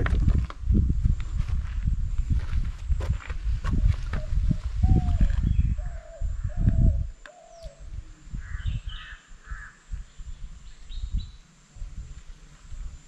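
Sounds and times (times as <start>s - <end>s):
wind rumble on microphone: 0.0s - 13.0s
birds calling: 4.0s - 11.5s
harsh bird calls: 4.2s - 11.5s.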